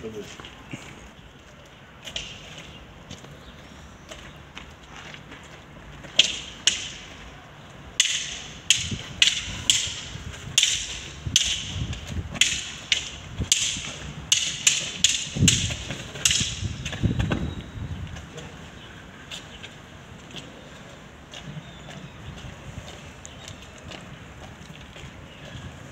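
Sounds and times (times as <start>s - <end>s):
wooden sticks clacking: 2.0s - 2.8s, 6.0s - 7.3s, 7.9s - 17.1s.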